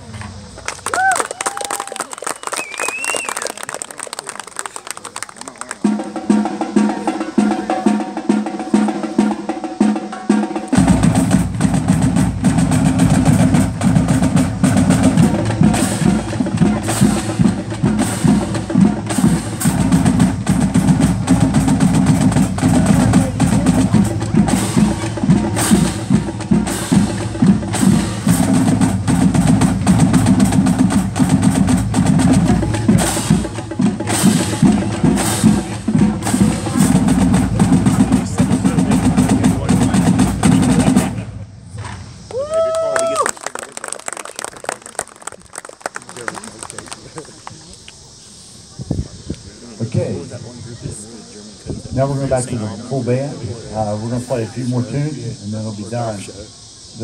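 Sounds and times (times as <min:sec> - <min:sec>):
marching band drums playing: 0:05.7 - 0:41.4.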